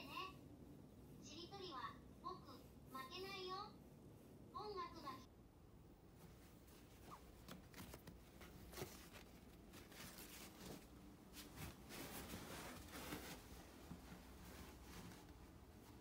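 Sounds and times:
low room hum: 0.0s - 16.0s
fabric bag rustling: 6.2s - 16.0s.

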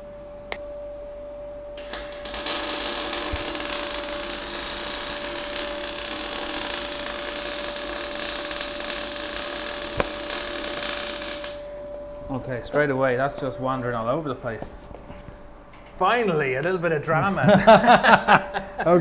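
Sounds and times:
steady hum: 0.0s - 19.0s
welding arc crackling: 1.8s - 11.8s.

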